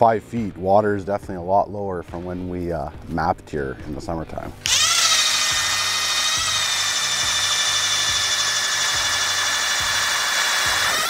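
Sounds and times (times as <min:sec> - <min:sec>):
electric ice auger whining: 0:04.6 - 0:11.0.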